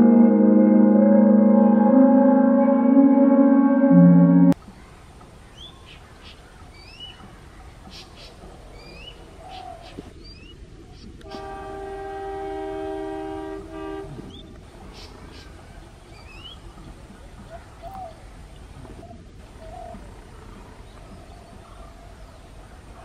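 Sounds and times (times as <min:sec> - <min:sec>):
locomotive horn blast: 0:00.0 - 0:04.6, 0:11.2 - 0:14.4.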